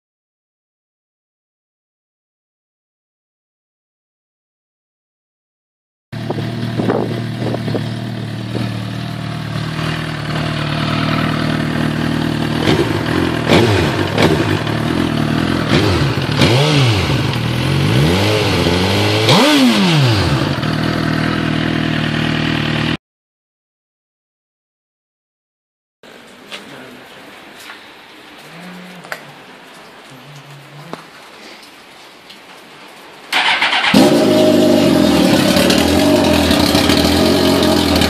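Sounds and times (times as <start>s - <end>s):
motorcycle engine idling and revving: 6.2s - 23.0s, 33.3s - 38.0s.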